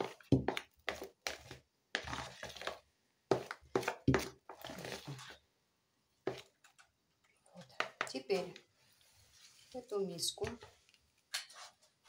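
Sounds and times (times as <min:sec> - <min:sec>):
hand squelching dough: 0:00.0 - 0:05.4.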